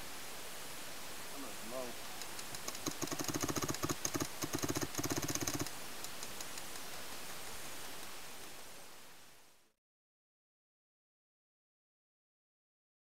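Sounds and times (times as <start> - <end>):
paintball marker firing bursts: 2.5 - 5.7.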